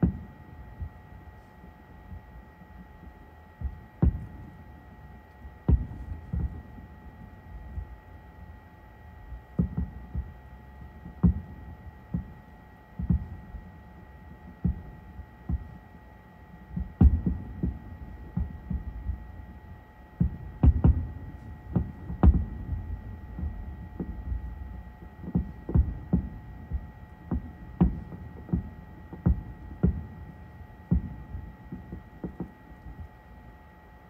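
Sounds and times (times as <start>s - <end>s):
distant fireworks booming: 2.1s - 8.0s, 16.7s - 33.2s.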